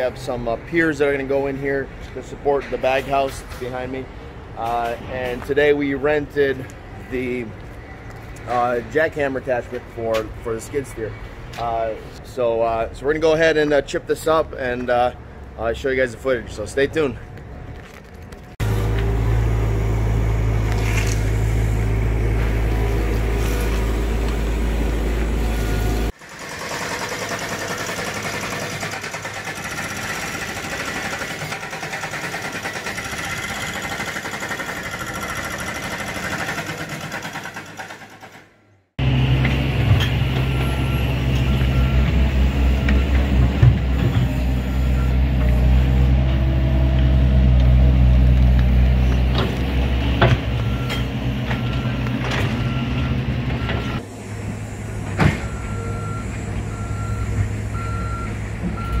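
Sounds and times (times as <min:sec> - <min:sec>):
diesel engine running: 0:18.5 - 0:37.8, 0:39.0 - 0:59.0
excavator engine under load: 0:18.6 - 0:59.0.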